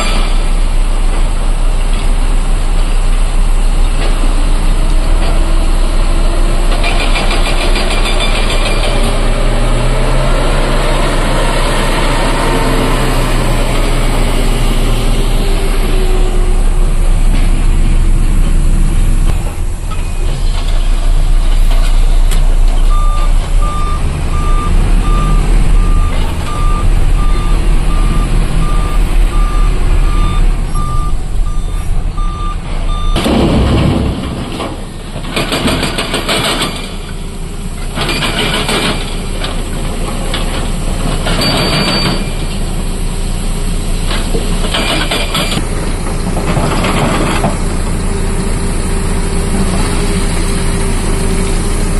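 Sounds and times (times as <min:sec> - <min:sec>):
truck diesel engine running: 0:00.0 - 0:41.4, 0:42.2 - 0:51.9
excavator engine: 0:00.0 - 0:51.9
hydraulic rock breaker hammering: 0:06.7 - 0:09.2, 0:33.1 - 0:37.2
reversing beeper: 0:22.8 - 0:33.4.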